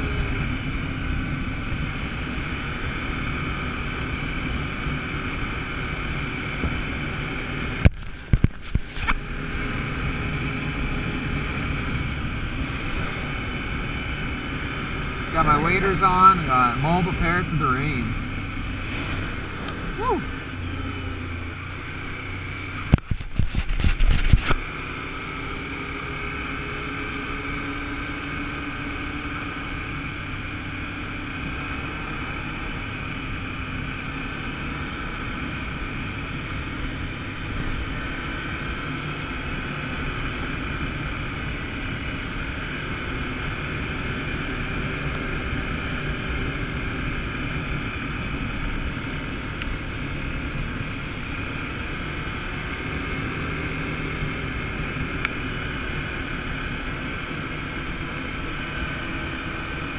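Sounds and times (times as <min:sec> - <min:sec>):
atv engine running: 0:00.0 - 0:59.9
wind noise on microphone: 0:06.5 - 0:15.0, 0:22.8 - 0:24.7.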